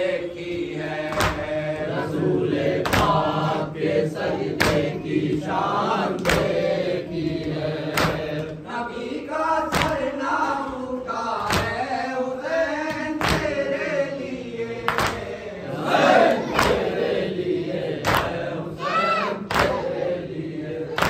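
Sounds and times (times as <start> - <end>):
men chanting in unison: 0.0 - 21.0
chest-beating slaps: 0.4 - 1.6, 2.8 - 3.4, 4.5 - 5.1, 6.1 - 6.7, 7.9 - 8.5, 9.7 - 10.1, 11.4 - 11.8, 12.9 - 13.6, 16.4 - 17.0, 18.0 - 18.4, 19.4 - 20.0.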